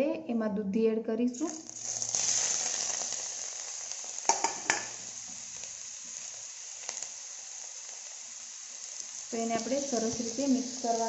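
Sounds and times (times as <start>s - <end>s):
vegetables sizzling in a pan: 1.4s - 11.0s
spoon knocking against pan: 4.3s - 4.9s.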